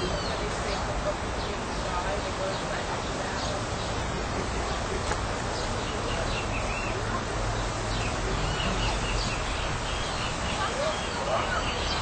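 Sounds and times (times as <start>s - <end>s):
steady outdoor hiss: 0.0s - 12.0s.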